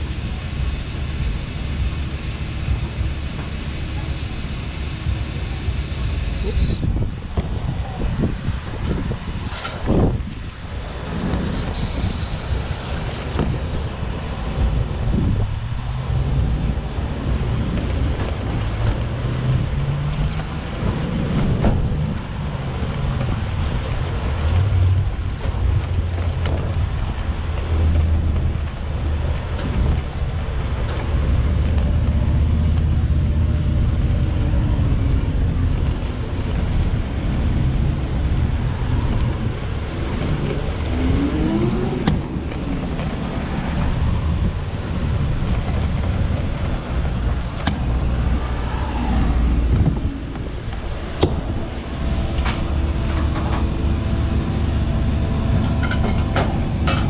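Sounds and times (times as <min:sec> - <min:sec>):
fuel rushing hiss: 0:00.0 - 0:18.8, 0:26.6 - 0:53.0
fuel pump rumble and hum: 0:49.6 - 0:57.0.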